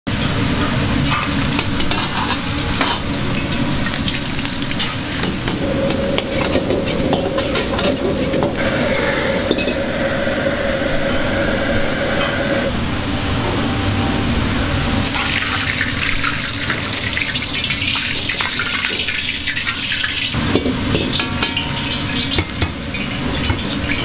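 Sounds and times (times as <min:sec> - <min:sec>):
rice sizzling in a wok: 0:00.1 - 0:09.0, 0:15.0 - 0:24.0
steady hum: 0:00.2 - 0:18.2
metal ladle scraping a wok: 0:01.6 - 0:03.1.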